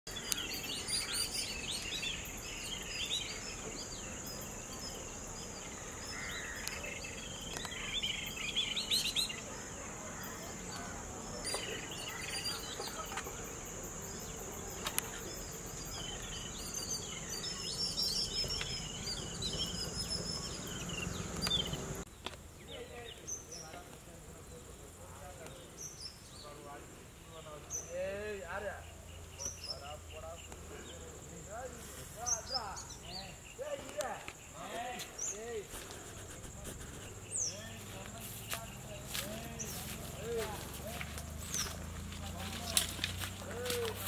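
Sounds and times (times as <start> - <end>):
birds chirping: 0.0 - 44.0.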